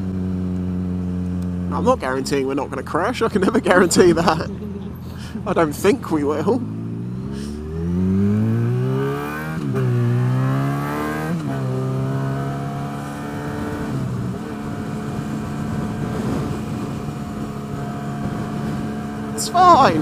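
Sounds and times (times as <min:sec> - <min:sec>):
motorcycle engine accelerating: 0:00.0 - 0:20.0
wind noise: 0:13.2 - 0:20.0.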